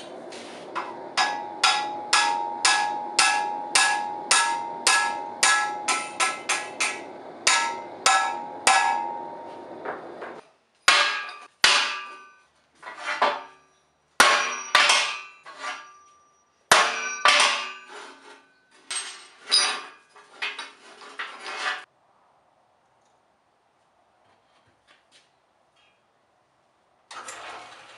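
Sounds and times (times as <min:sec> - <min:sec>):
hammer striking hot metal: 0:00.7 - 0:12.4, 0:14.2 - 0:18.0.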